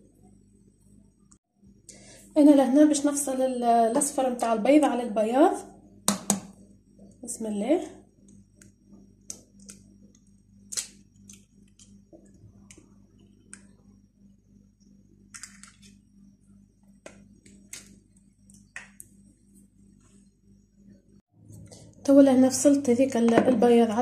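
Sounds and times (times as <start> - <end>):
faint low hum: 0.0 - 24.0
eggshells cracking: 10.7 - 12.0.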